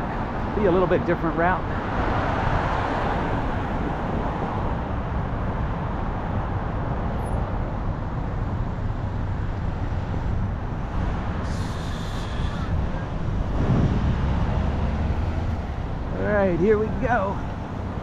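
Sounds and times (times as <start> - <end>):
road traffic rumble: 0.0 - 18.0
vehicle driving past: 13.4 - 16.0.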